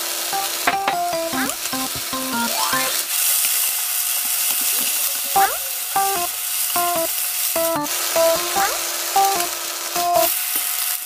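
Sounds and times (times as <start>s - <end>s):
vegetables sizzling in a frying pan: 3.1s - 8.3s, 8.9s - 11.0s.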